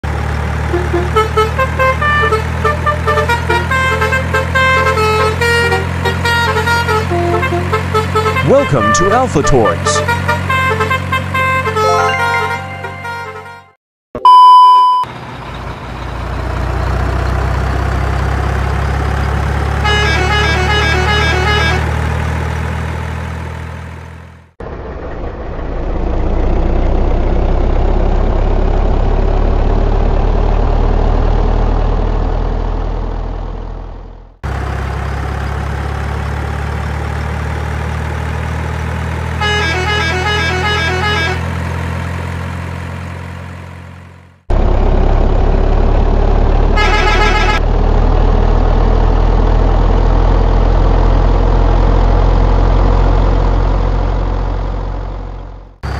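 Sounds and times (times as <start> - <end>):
truck engine running: 0.0 - 13.4, 15.1 - 55.9
horn toots: 0.7 - 13.8, 19.8 - 22.0, 39.4 - 41.6, 46.8 - 47.6.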